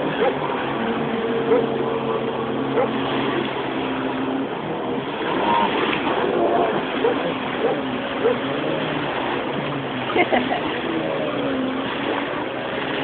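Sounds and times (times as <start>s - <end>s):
jet ski engine running: 0.0s - 13.0s
water noise: 0.0s - 13.0s
wind: 0.0s - 13.0s.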